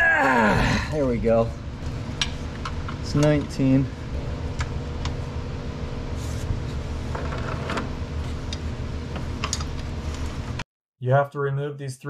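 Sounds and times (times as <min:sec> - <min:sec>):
low mechanical hum: 0:00.0 - 0:10.6.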